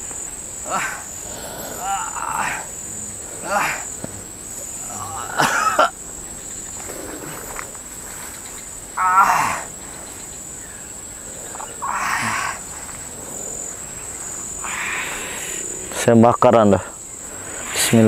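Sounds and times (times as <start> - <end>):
high insect buzz: 0.0 - 18.0
man crying out strained: 0.6 - 4.0, 4.6 - 6.0, 9.0 - 9.8, 11.8 - 12.8.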